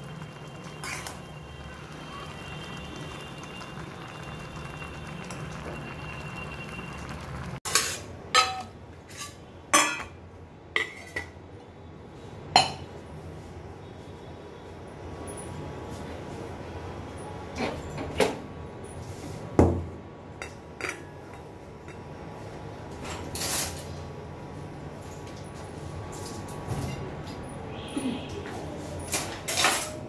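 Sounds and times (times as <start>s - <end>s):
noodles simmering with low hiss: 0.0s - 7.8s.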